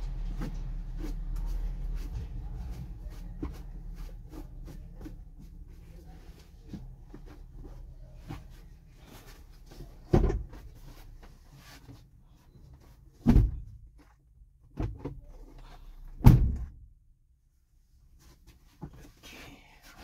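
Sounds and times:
heavy thuds inside truck cab: 10.0s - 10.7s, 13.2s - 13.8s, 16.1s - 16.8s.

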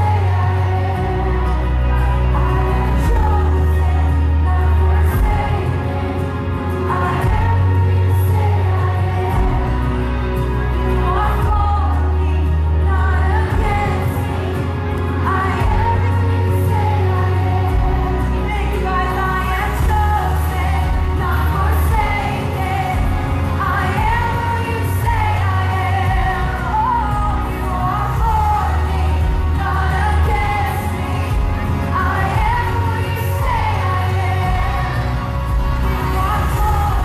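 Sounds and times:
band backing with bass: 0.0s - 37.0s
voices singing: 0.0s - 37.0s.

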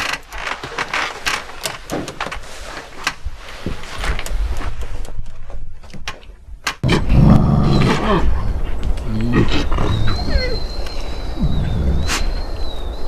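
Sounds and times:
wolves growling: 6.8s - 12.5s
thin high whistle: 10.1s - 13.0s.

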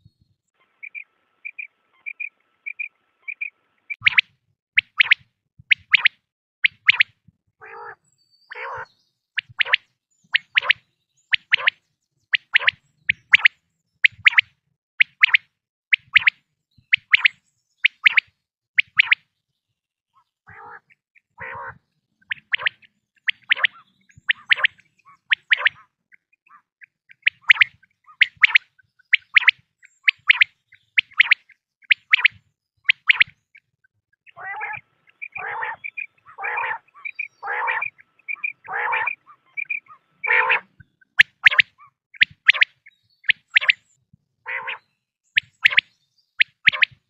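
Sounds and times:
quail calling: 0.6s - 9.8s, 10.4s - 10.8s, 11.4s - 11.8s, 12.4s - 13.5s, 20.5s - 33.4s, 34.3s - 43.8s, 44.5s - 47.0s.

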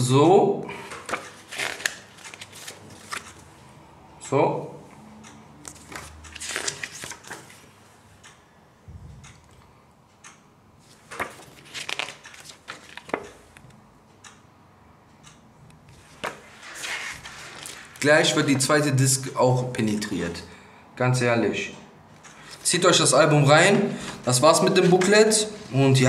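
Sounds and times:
paper pages rustling: 1.0s - 3.4s, 5.6s - 7.7s, 10.9s - 13.4s, 16.0s - 18.7s.

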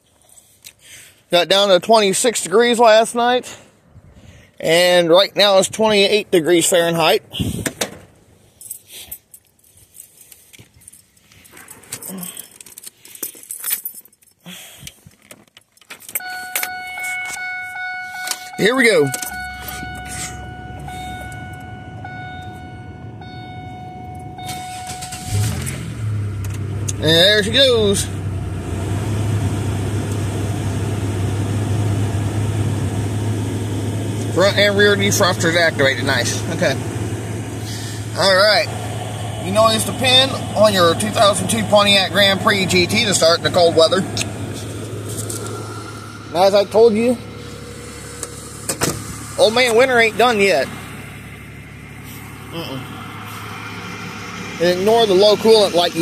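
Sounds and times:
car keys jangling: 8.5s - 22.6s, 23.2s - 25.8s
dashboard warning chime: 16.2s - 25.6s
car engine fast idling: 24.4s - 56.0s.

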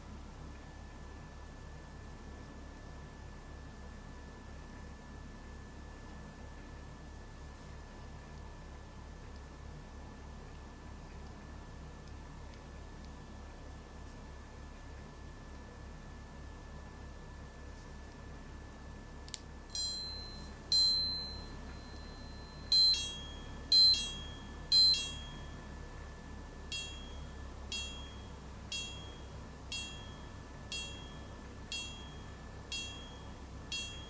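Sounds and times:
watch chiming: 19.7s - 25.8s, 26.7s - 34.0s.

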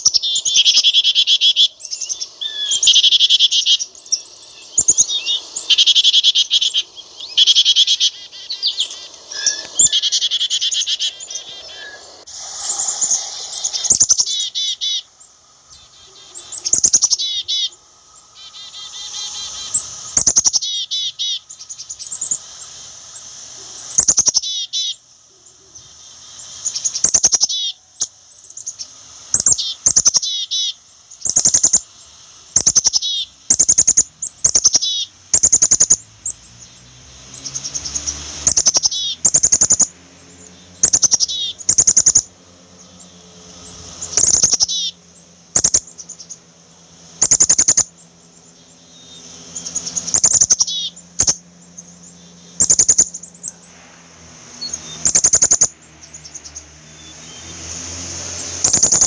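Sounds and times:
chickadee harsh calls: 0.0s - 59.0s.

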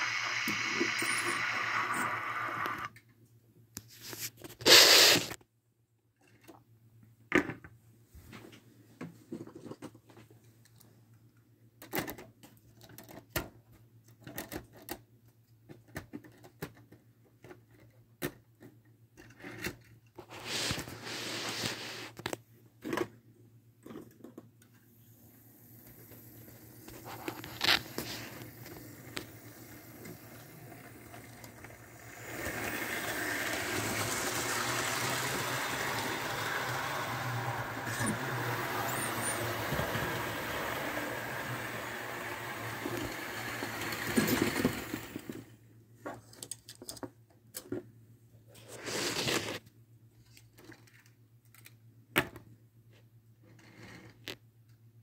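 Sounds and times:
model train running on track: 28.9s - 45.4s.

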